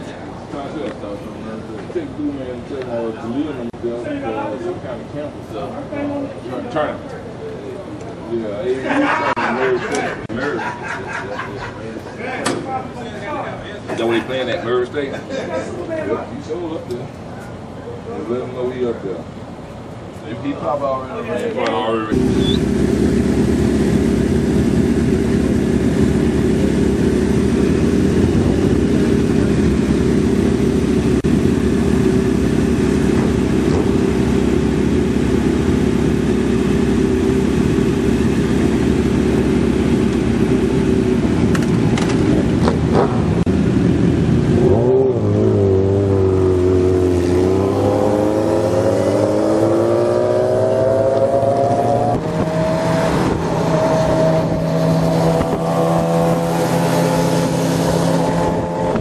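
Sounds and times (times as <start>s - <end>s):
motorcycle accelerating: 22.1s - 59.0s
motorcycle engines idling: 22.1s - 59.0s.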